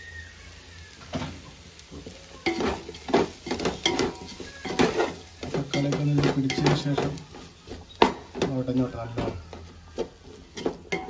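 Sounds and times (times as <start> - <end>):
food frying: 0.0 - 11.0
metal spoon scraping a pot: 2.4 - 8.6.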